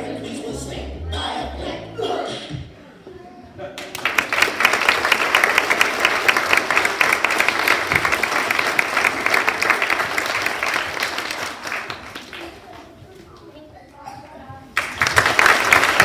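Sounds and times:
children applauding: 3.9 - 12.8, 14.8 - 16.0.

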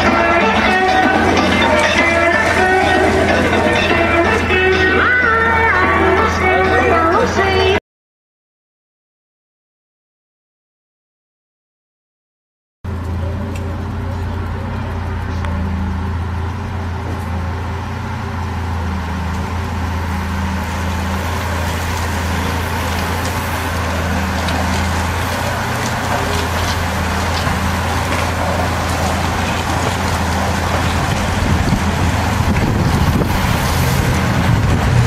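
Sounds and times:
vehicle engine hum: 0.0 - 7.8, 12.8 - 35.0
bicycles whirring past: 12.9 - 35.0.

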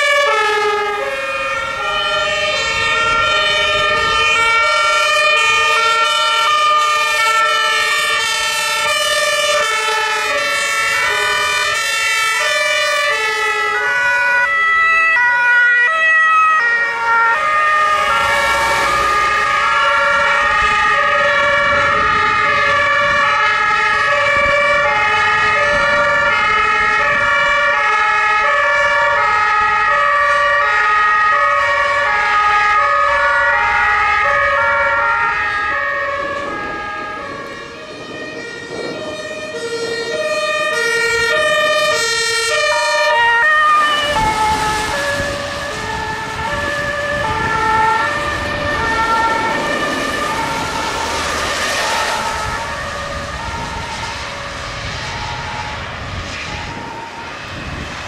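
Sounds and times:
two-tone emergency sirens: 0.0 - 58.0
vehicle engine and tyres on wet road: 0.0 - 58.0.

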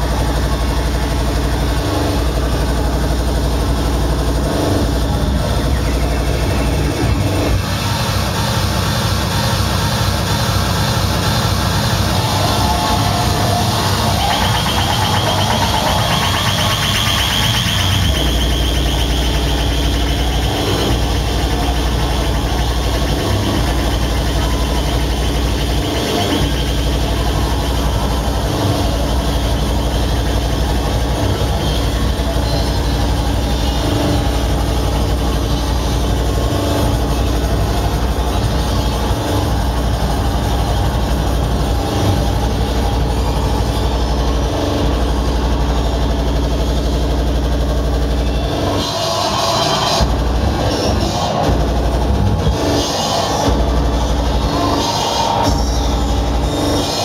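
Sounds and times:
distorted electronic noise music: 0.0 - 57.0
heavy droning bass: 0.0 - 57.0
high squealing tone: 11.5 - 57.0.

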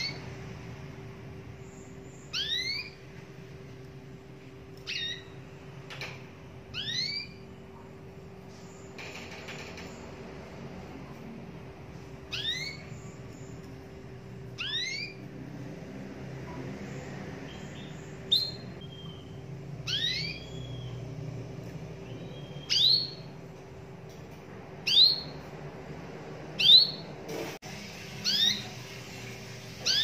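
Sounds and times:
canary rising call notes: 14.5 - 15.3.

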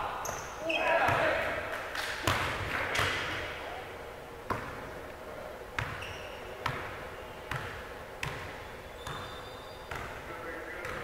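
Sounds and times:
basketball bouncing: 1.1 - 1.5, 2.2 - 3.3, 4.5 - 4.8, 5.8 - 6.0, 6.6 - 9.3, 9.9 - 10.2.

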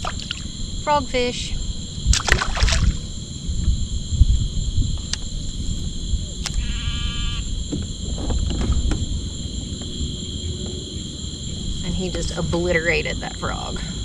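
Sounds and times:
insects buzzing: 0.0 - 14.0
sharp clicks: 6.4 - 6.7
short bleating call: 6.6 - 7.5
low rumble: 7.5 - 14.0.

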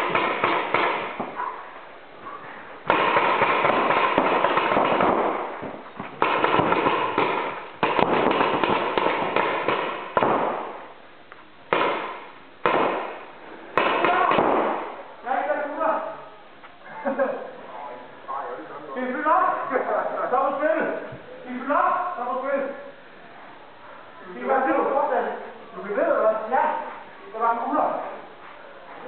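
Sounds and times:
paintball markers firing in bursts: 0.0 - 1.2, 2.9 - 5.6, 6.2 - 10.8, 11.7 - 14.8.

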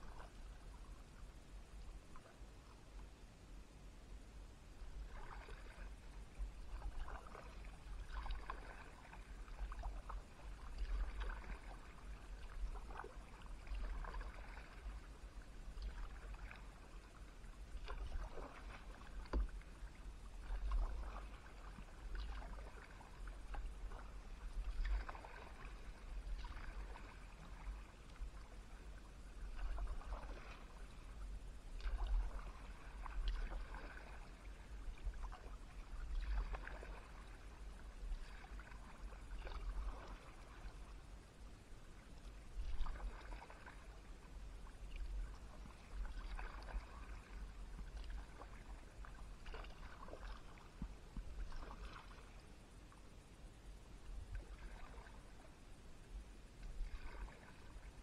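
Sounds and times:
paddle splashing in water: 4.9 - 41.0, 42.2 - 52.6, 54.1 - 55.4, 56.5 - 58.0.

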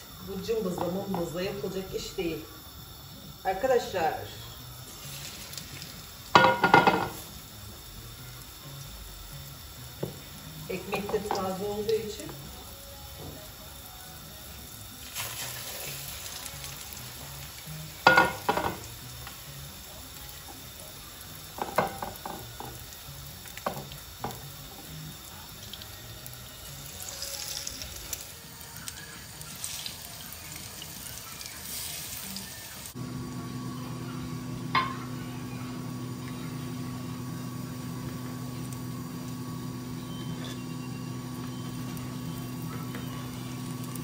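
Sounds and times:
bread frying in hot oil: 0.0 - 44.0
utensils knocking against pan: 6.3 - 7.2, 18.0 - 18.8, 21.6 - 22.8, 34.7 - 35.1.

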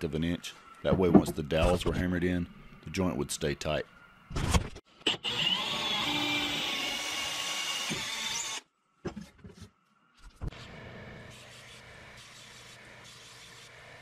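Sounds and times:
electric drill boring into wood: 5.1 - 8.6.

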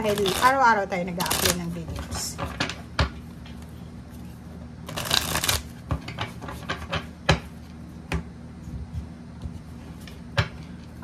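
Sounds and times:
cards riffle-shuffled: 0.1 - 0.5, 4.9 - 5.7.

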